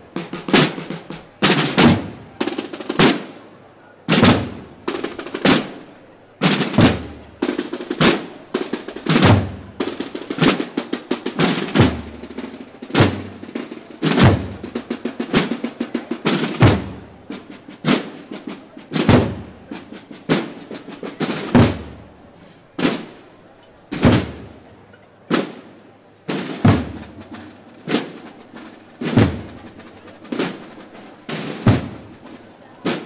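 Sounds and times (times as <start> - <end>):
drums beating a march: 0.0 - 33.0.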